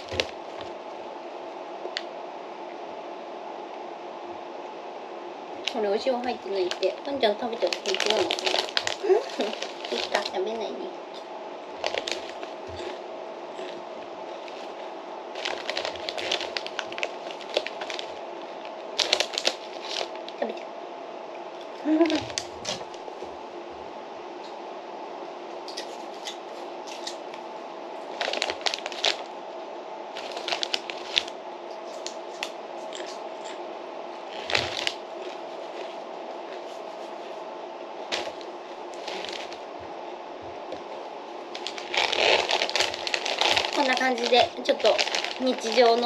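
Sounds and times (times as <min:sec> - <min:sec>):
foil chip bag crinkling: 0:00.0 - 0:00.7, 0:05.6 - 0:10.6, 0:11.8 - 0:13.0, 0:13.6 - 0:20.4, 0:28.0 - 0:29.3, 0:30.2 - 0:33.2, 0:34.2 - 0:37.2, 0:38.0 - 0:39.6, 0:41.5 - 0:46.0
low hum: 0:00.0 - 0:46.0.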